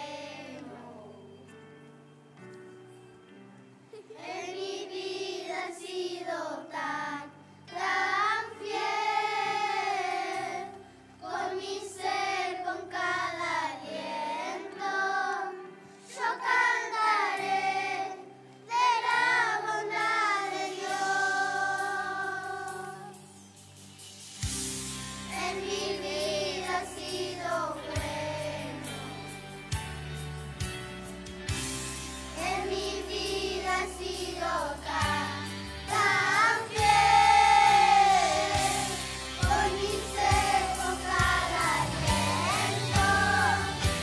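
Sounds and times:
children's choir singing: 0.0 - 1.8, 3.9 - 23.4, 25.3 - 29.4, 32.3 - 44.0
instrumental accompaniment: 17.5 - 44.0.

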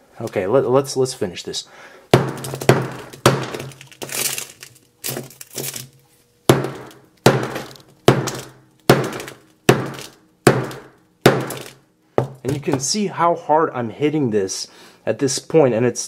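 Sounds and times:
hammer hitting glass screen: 2.2 - 5.8, 6.5 - 12.7
glass crunching and crackling: 2.2 - 6.0, 6.6 - 11.8.

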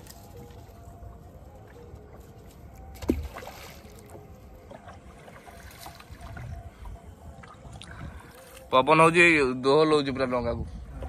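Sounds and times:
water splashing and lapping: 0.0 - 8.7
low wind rumble: 2.9 - 11.0.

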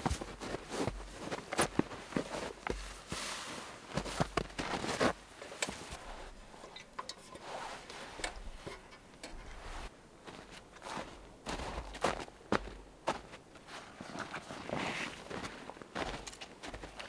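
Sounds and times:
fur pelts rustling: 0.0 - 6.6
lantern handle metallic clicks: 5.5 - 9.9.

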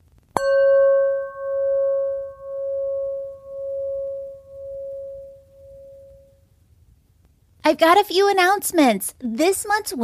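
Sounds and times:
struck bell ringing: 0.4 - 6.4.

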